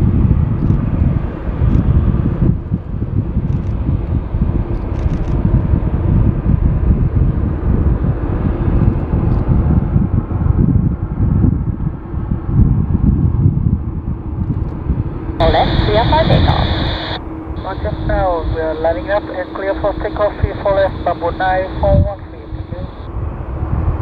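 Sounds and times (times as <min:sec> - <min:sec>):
wind buffeting microphone: 0:00.0 - 0:24.0
jet engines rumbling: 0:15.0 - 0:23.1.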